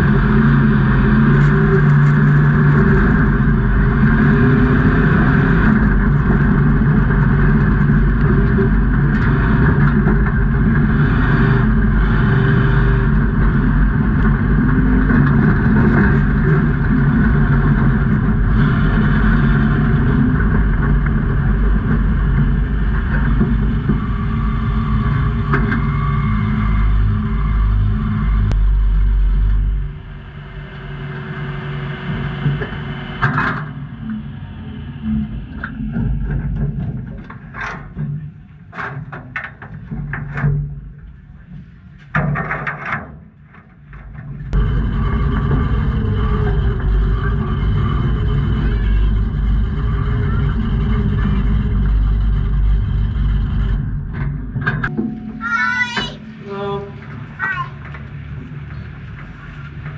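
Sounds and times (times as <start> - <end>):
truck engine revving: 0.0 - 36.4, 44.5 - 55.2.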